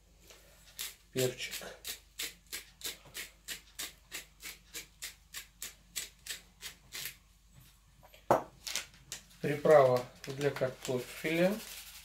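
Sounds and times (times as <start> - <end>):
pepper sprinkled over potato wedges: 0.7 - 7.2, 9.3 - 12.0.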